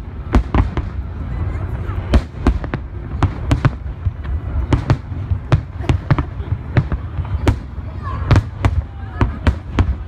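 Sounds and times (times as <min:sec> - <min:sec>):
firework bangs: 0:00.0 - 0:10.0.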